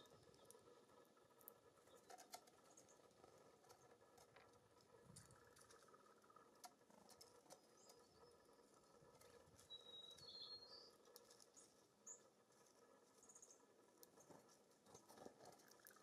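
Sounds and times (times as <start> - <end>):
birds pecking at feeders: 0.0 - 16.0
high bird chirps: 9.6 - 11.0.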